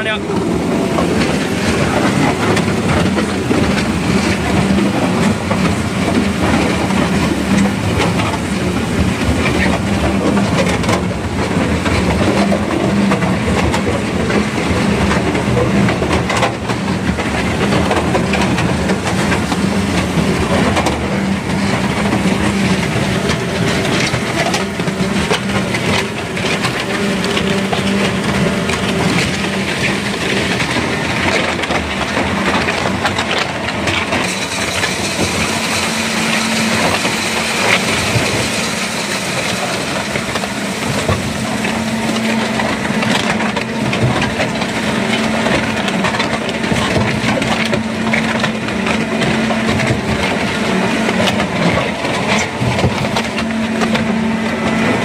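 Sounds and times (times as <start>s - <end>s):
engine hum: 0.0s - 55.0s
paddles churning wet concrete: 0.0s - 55.0s.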